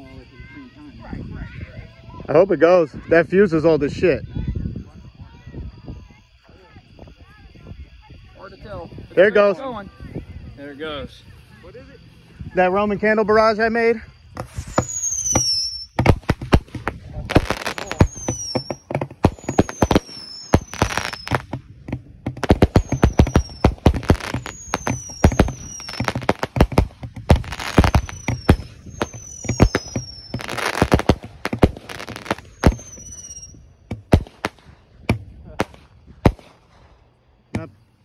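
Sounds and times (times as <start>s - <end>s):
roman candles popping and booming: 14.2s - 37.8s
whistles falling in pitch: 14.5s - 16.0s, 17.5s - 21.5s, 22.7s - 26.3s, 27.5s - 31.1s, 31.9s - 33.7s.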